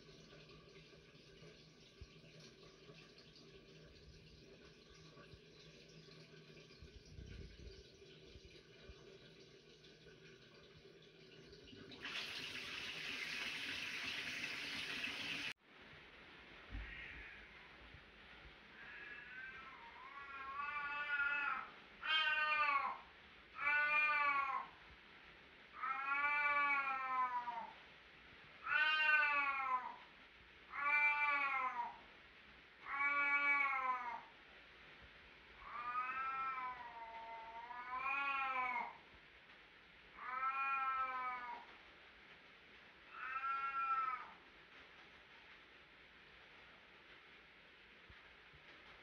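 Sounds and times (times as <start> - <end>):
cat meowing: 16.7 - 17.6, 18.8 - 23.0, 23.6 - 24.7, 25.8 - 27.7, 28.6 - 30.0, 30.7 - 32.0, 32.8 - 34.3, 35.6 - 39.0, 40.2 - 41.7, 43.1 - 44.4.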